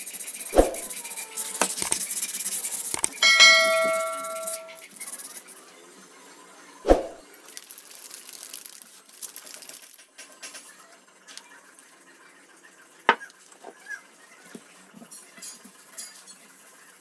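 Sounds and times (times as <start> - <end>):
brass ringing like a bell: 3.2 - 4.8.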